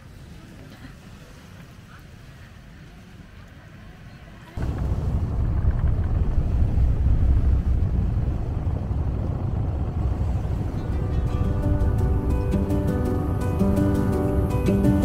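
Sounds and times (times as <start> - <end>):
loud low rumble: 4.5 - 15.0.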